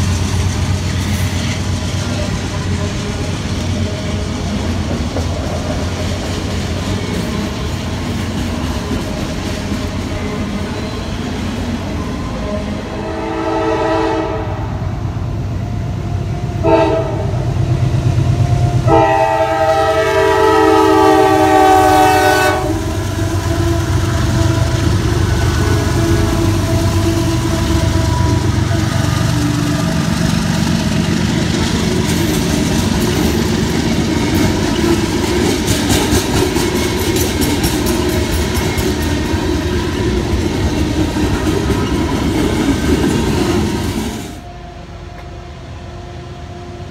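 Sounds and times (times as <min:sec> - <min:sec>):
freight cars clickety-clack: 0:00.0 - 0:12.0, 0:22.4 - 0:44.3
locomotive engines rumbling: 0:00.0 - 0:46.9
diesel locomotive horn blasts: 0:11.8 - 0:15.1, 0:15.7 - 0:17.6, 0:18.3 - 0:30.1, 0:44.3 - 0:46.9.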